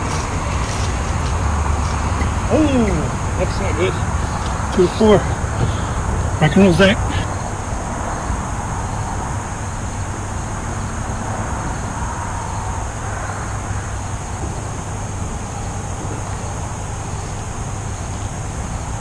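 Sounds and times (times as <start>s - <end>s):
constant hiss: 0.0s - 19.0s.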